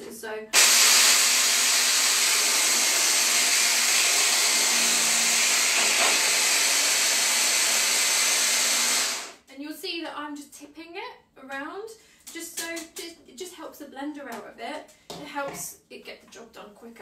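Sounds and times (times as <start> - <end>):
hand blender whizzing: 0.6 - 9.4.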